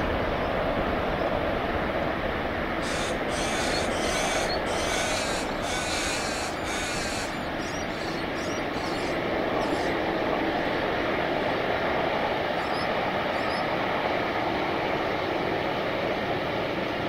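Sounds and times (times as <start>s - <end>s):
jet engines at takeoff power: 0.0s - 17.0s
shrill high-pitched bursts: 2.8s - 9.8s.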